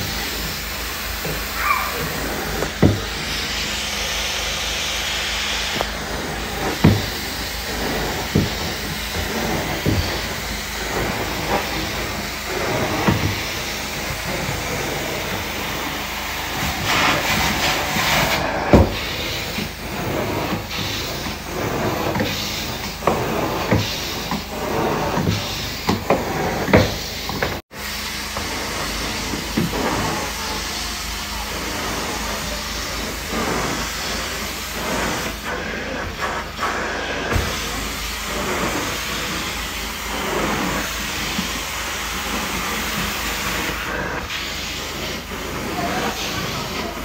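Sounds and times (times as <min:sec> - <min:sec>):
extraction wand sucking water: 0:00.0 - 0:27.4.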